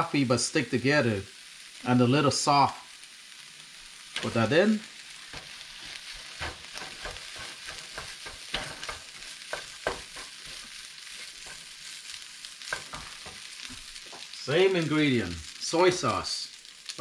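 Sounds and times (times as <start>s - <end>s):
rice sizzling in oil: 0.0s - 17.0s
utensil scraping pan: 5.4s - 11.8s.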